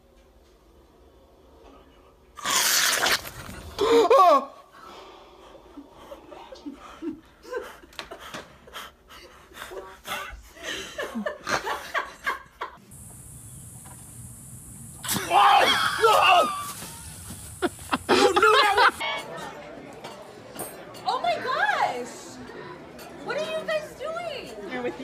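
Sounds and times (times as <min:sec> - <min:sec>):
laughter: 0:06.3 - 0:08.6, 0:10.6 - 0:12.8, 0:17.6 - 0:19.0.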